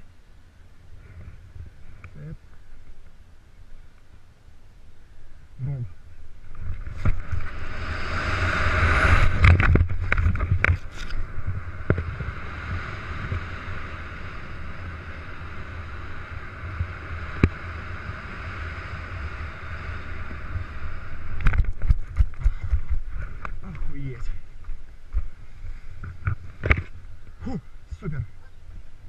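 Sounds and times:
wind buffeting microphone: 5.3 - 29.0.

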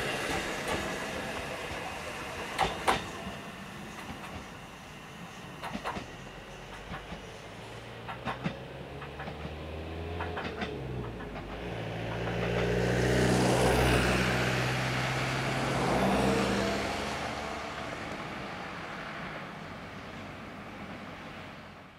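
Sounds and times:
faint train wheel clicks: 5.6 - 9.6, 10.2 - 12.7
truck passing: 8.8 - 20.4.

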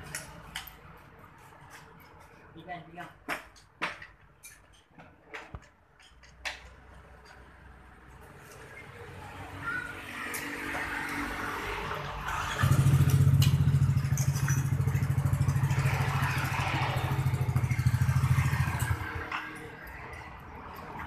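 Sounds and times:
motorcycle engine pulsing: 12.5 - 19.2.

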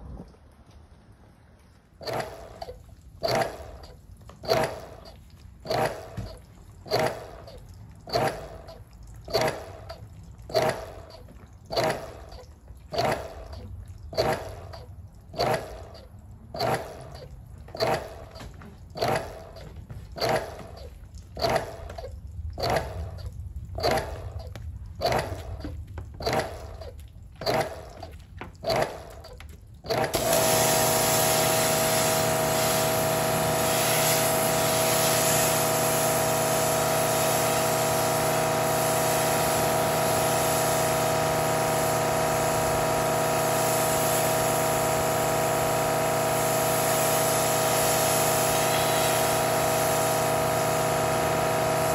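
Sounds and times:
electric water pump: 1.6 - 51.9
water spraying hiss: 30.0 - 51.9.

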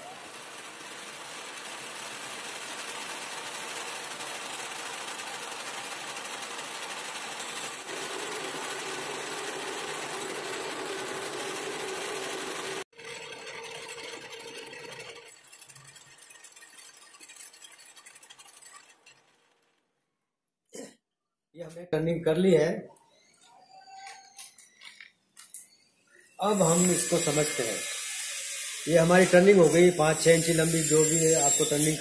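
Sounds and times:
lathe cutting metal bar: 0.0 - 19.3, 26.4 - 32.0.

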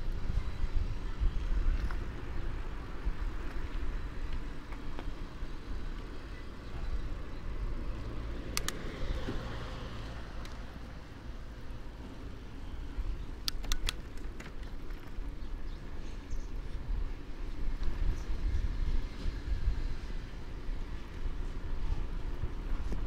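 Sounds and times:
road traffic rumble: 0.0 - 23.0
sharp clicks: 8.5 - 8.9, 13.4 - 14.7.

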